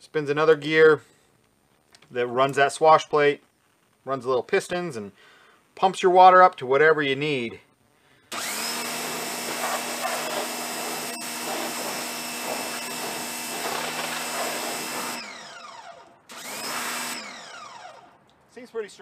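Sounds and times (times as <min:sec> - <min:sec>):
pressure washer motor whine: 0:08.3 - 0:18.2
water jet hissing: 0:09.0 - 0:15.2.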